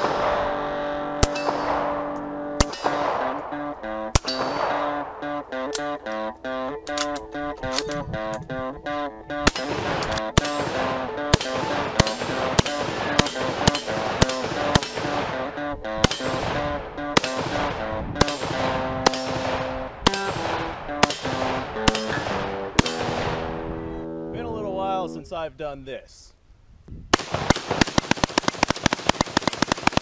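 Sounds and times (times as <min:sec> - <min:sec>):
rifle single shots: 0:00.0 - 0:06.0, 0:09.4 - 0:23.7, 0:27.1 - 0:30.0
plucked guitar music: 0:00.0 - 0:25.3.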